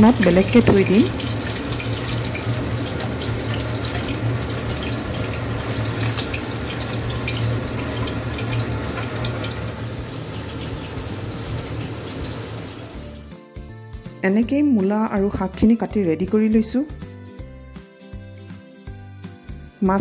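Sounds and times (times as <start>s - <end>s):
oil sizzling and crackling: 0.0s - 13.3s.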